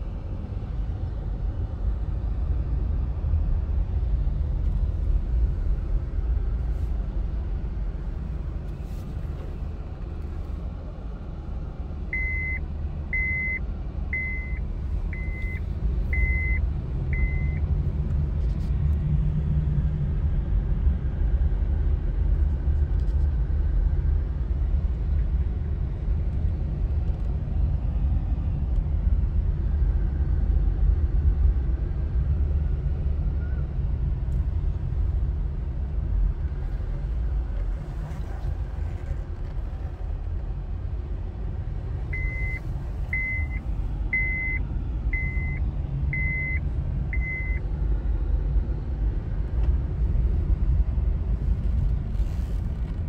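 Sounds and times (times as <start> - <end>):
car engine and tyres rumbling: 0.0 - 53.0
short high beeps: 42.2 - 42.6, 45.2 - 45.6.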